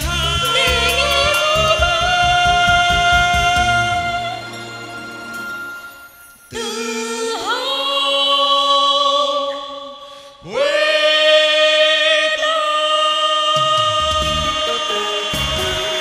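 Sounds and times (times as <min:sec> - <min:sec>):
low drum beats: 0:00.0 - 0:04.4
man and woman singing duet: 0:00.0 - 0:05.8, 0:06.5 - 0:16.0
backing music: 0:00.0 - 0:06.8, 0:13.5 - 0:16.0.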